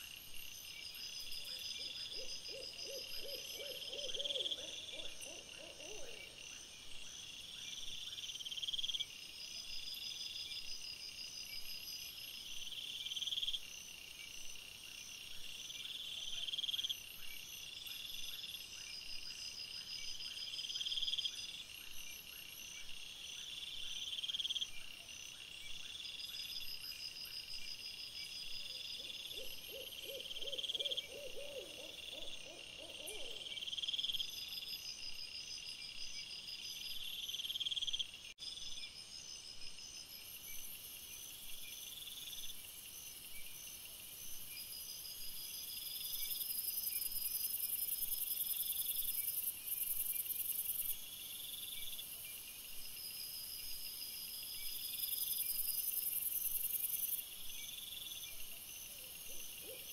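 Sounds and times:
insects chirping: 0:00.0 - 0:59.9
owl hooting: 0:02.1 - 0:06.2, 0:29.0 - 0:33.5.

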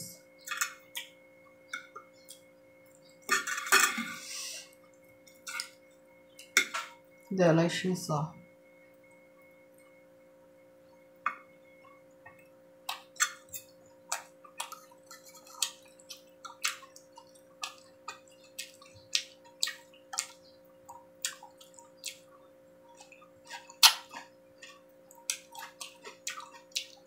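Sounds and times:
steady low hum: 0:00.0 - 0:27.0
chewing and lip-smacks: 0:11.8 - 0:27.0.

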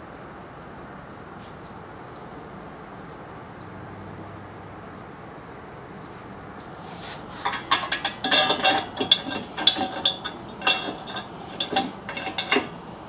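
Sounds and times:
metal parts clinking and rattling: 0:05.8 - 0:12.8.

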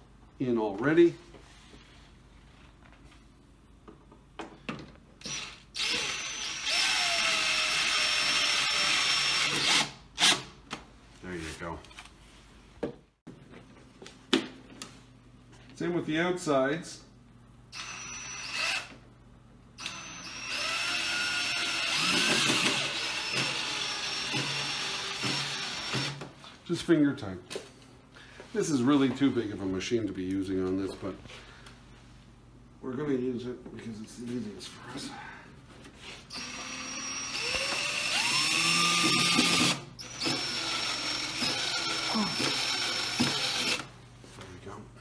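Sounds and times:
cordless drill driving screw: 0:05.2 - 0:10.4, 0:17.8 - 0:19.0, 0:19.8 - 0:26.2, 0:36.3 - 0:43.9.

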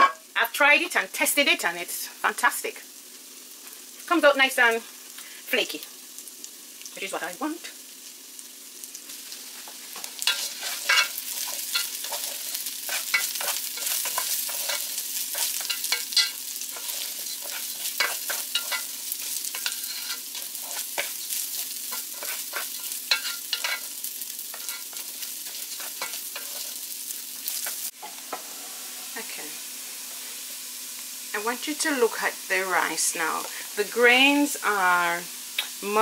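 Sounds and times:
rice sizzling in hot oil: 0:00.0 - 0:36.0
wooden spoon scraping a pot: 0:09.7 - 0:23.9, 0:24.5 - 0:26.8.

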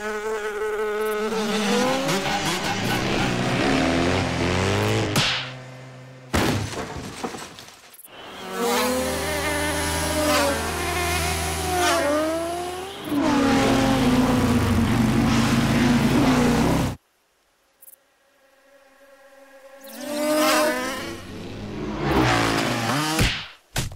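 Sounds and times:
cartoon flies buzzing: 0:08.2 - 0:15.3, 0:18.8 - 0:22.8.

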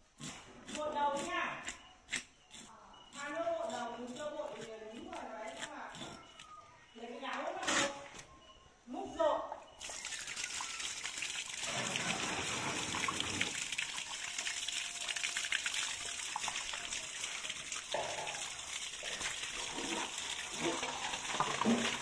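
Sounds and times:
tap water gushing and splashing: 0:09.8 - 0:22.0.

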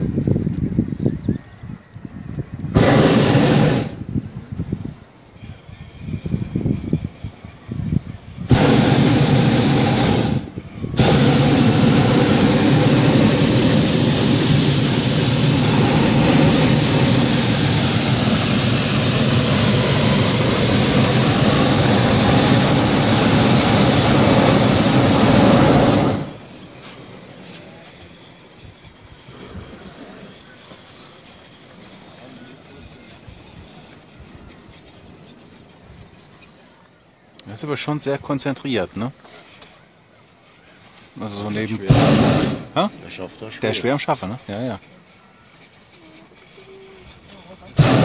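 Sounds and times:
propane burner firing: 0:02.7 - 0:04.2, 0:08.5 - 0:27.0, 0:41.2 - 0:44.1, 0:47.7 - 0:48.0.

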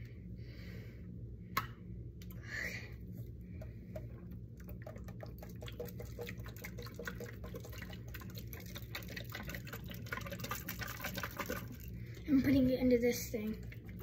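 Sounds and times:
water dripping into a steel sink: 0:04.0 - 0:12.4.

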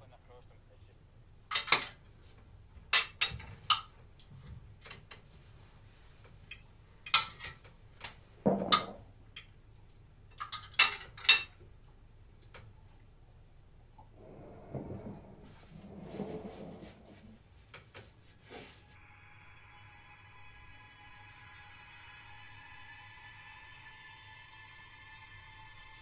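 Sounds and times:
cutlery clinking on plates: 0:01.5 - 0:02.0, 0:02.9 - 0:03.9, 0:06.5 - 0:07.7, 0:08.5 - 0:09.5, 0:10.3 - 0:11.6.

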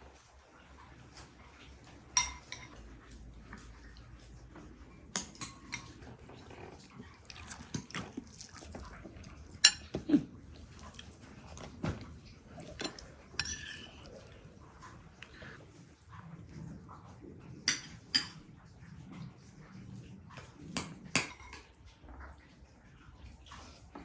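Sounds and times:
kitchenware clinking and knocking: 0:12.7 - 0:13.9.

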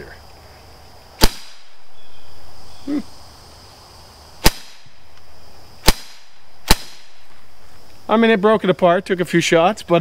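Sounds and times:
air pistol pops: 0:01.2 - 0:01.7, 0:04.4 - 0:07.3.

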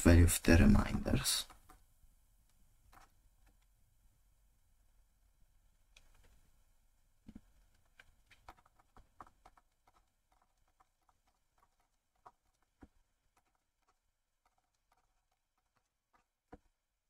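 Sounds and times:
stylus tapping on tablet screen: 0:07.2 - 0:16.8.

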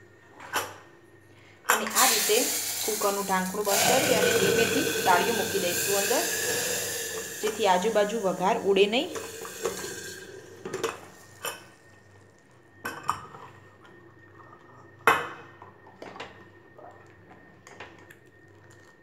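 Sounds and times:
hot oil hissing: 0:01.8 - 0:11.8.

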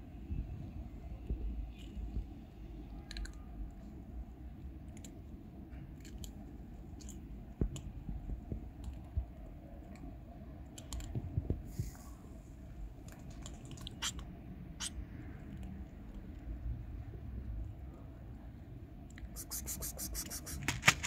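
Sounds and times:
low background rumble: 0:00.0 - 0:21.0
cats crunching dry kibble: 0:05.8 - 0:07.9, 0:13.0 - 0:14.2, 0:19.4 - 0:21.0.

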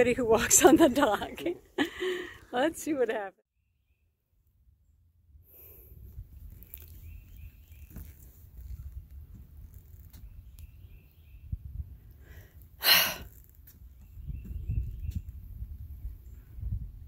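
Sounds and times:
wind buffeting microphone: 0:00.0 - 0:01.5, 0:08.7 - 0:12.4, 0:13.8 - 0:17.0
faint bird chirps: 0:13.8 - 0:15.4.

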